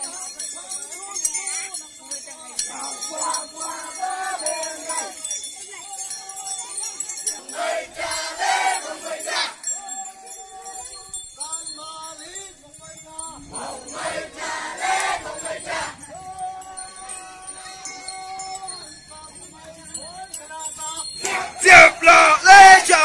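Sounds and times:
small bells jingling: 0.0s - 23.0s
group of voices chanting: 2.8s - 5.2s, 7.4s - 9.7s, 13.5s - 16.1s, 21.2s - 23.0s.

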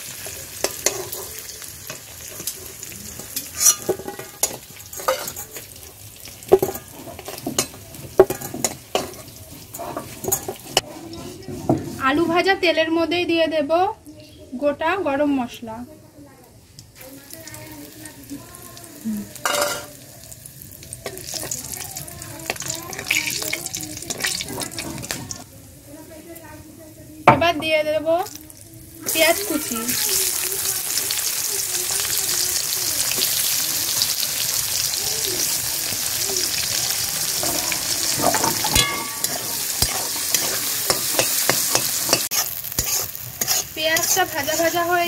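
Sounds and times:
spices sizzling in hot oil: 0.0s - 12.6s, 14.1s - 45.0s
spatula scraping a metal pan: 0.6s - 5.6s, 6.5s - 12.5s, 37.3s - 45.0s.

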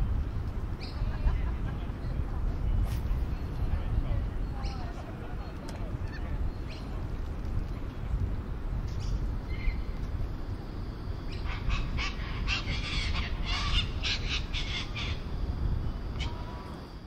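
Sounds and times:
steady low rumble: 0.0s - 17.0s
birds calling: 0.8s - 2.2s, 11.2s - 16.7s.

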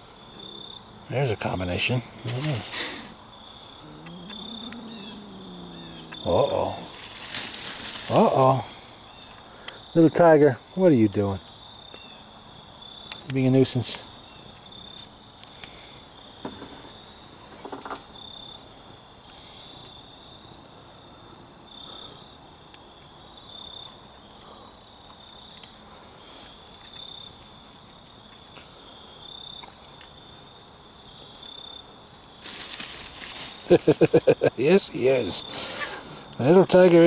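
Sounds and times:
high-pitched insect trill: 0.0s - 37.0s
soft rustles: 6.7s - 8.4s, 32.4s - 34.2s.

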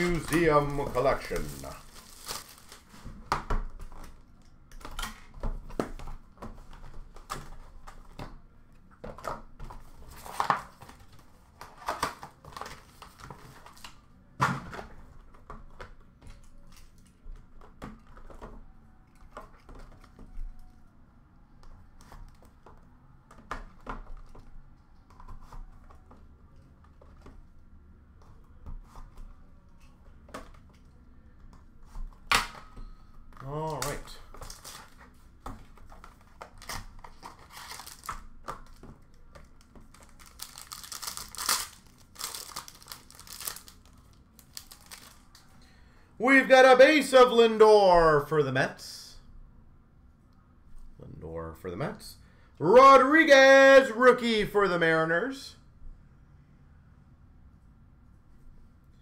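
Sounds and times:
cardboard rustling: 0.0s - 4.2s, 33.4s - 45.2s.

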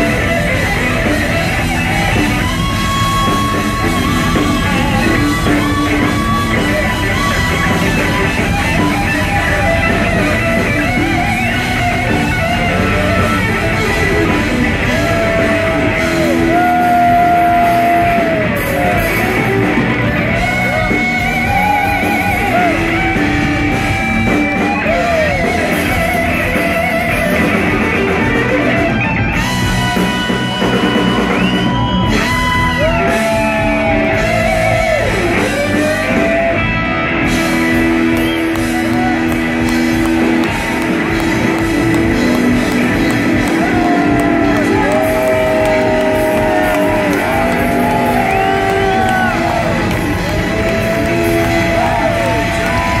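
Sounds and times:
blues-rock band playing: 0.0s - 53.0s
electric guitar lead bends: 0.0s - 53.0s.

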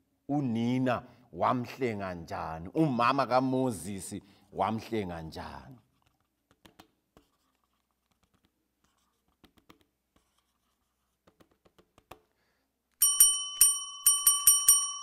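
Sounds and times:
small bell ringing rapidly: 13.0s - 15.0s.

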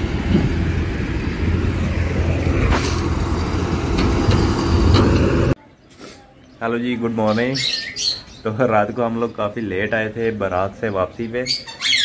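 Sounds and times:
road traffic: 0.0s - 7.5s.

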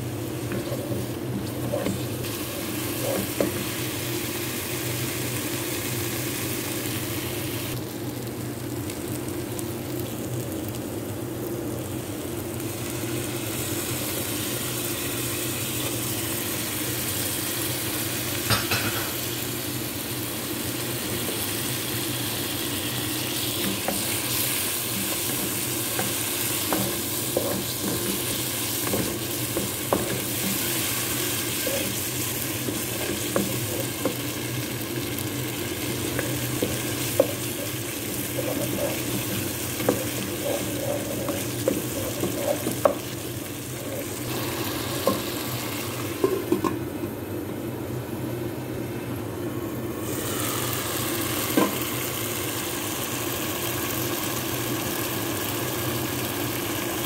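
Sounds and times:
sauce sizzling in a pan: 0.0s - 46.6s, 50.0s - 57.0s
spatula knocking and scraping pan: 0.4s - 2.1s, 24.9s - 30.9s, 32.7s - 34.2s, 36.1s - 43.2s.

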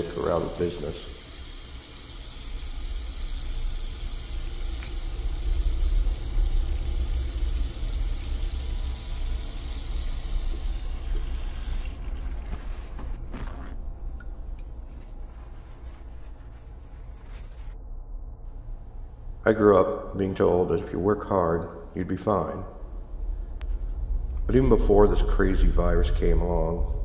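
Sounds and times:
paper towel rustling: 11.0s - 17.8s.

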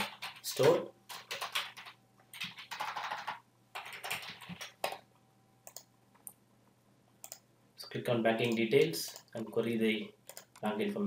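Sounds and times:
typing on computer keyboard: 0.0s - 5.0s, 8.4s - 9.3s, 10.3s - 10.6s
faint keyboard clicks: 5.6s - 6.4s, 7.2s - 7.4s, 10.3s - 10.7s.

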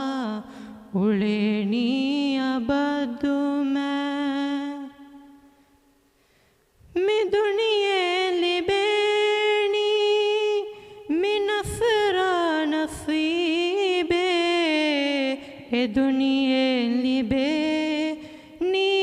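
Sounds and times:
boy singing unaccompanied: 6.9s - 19.0s.

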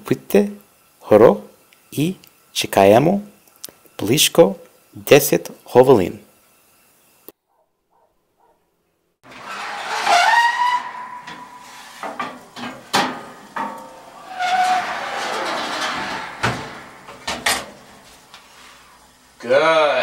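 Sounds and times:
metal tray scraping: 9.2s - 19.0s
metal tray clanks: 9.3s - 18.3s
metal tray squeal: 9.3s - 18.8s.

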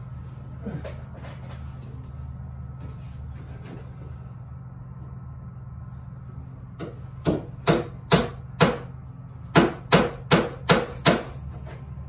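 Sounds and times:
hammer striking nail into wood: 6.8s - 8.9s, 9.5s - 11.4s.

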